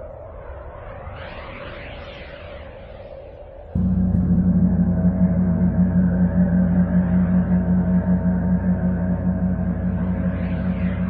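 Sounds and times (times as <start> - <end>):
low pulsing tone: 3.8 - 11.0.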